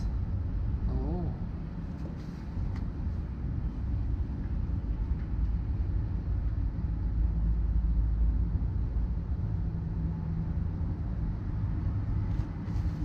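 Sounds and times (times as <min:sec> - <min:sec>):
vehicle engines rumbling: 0:00.0 - 0:13.0.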